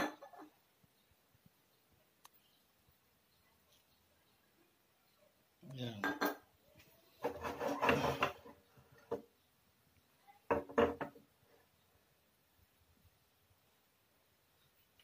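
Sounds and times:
spatula rubbing and knocking on wok: 7.2s - 9.2s.

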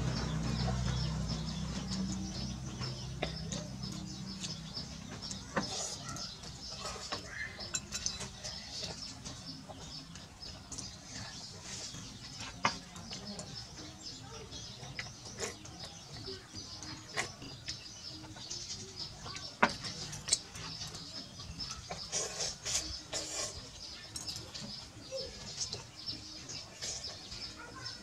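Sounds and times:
small birds chirping: 0.0s - 28.0s
cutlery clinking on ceramic bowls: 5.3s - 9.9s.

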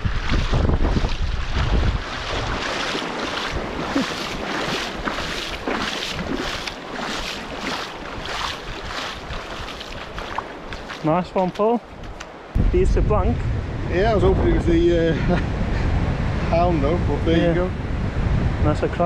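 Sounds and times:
splashing through shallow surf: 0.0s - 12.6s
wind buffeting microphone: 0.0s - 19.0s.

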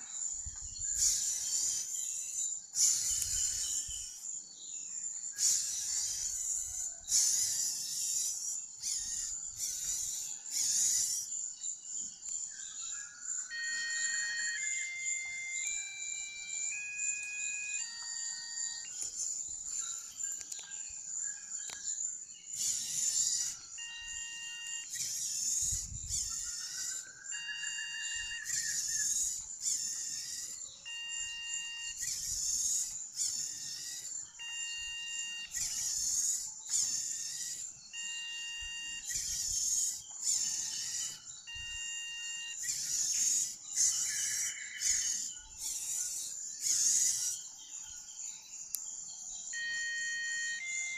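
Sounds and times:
steady high-pitched tone: 13.4s - 20.6s, 22.6s - 43.6s, 49.5s - 50.9s.

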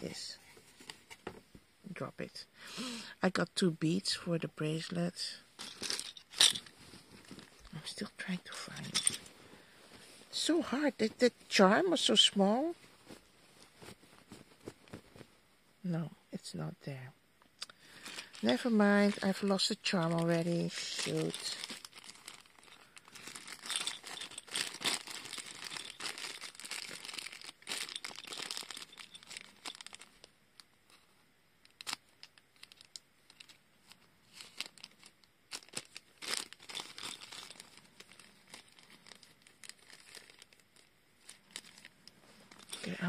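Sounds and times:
plastic bag crinkling: 5.6s - 9.7s, 17.9s - 30.3s, 31.6s - 43.0s.

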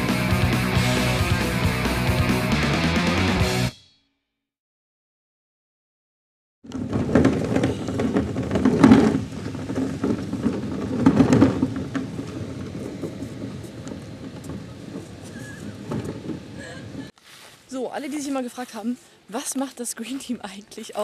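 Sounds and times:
wheelie bins rolling on asphalt: 6.7s - 17.2s.

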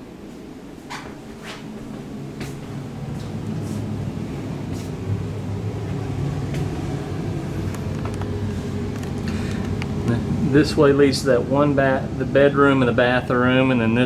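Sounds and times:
air conditioner humming: 0.0s - 14.0s
soft footsteps on floor: 0.3s - 4.0s, 4.6s - 5.0s, 6.4s - 6.8s.

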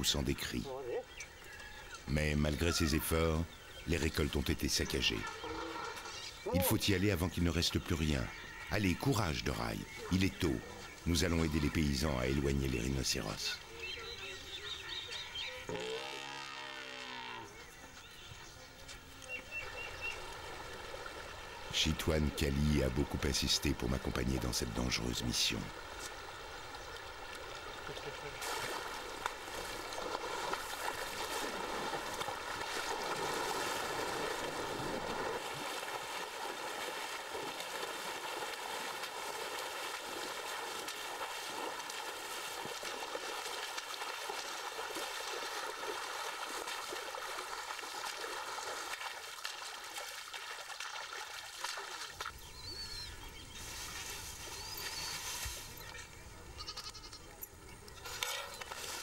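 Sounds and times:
water splashing around elephant legs: 19.0s - 53.0s.

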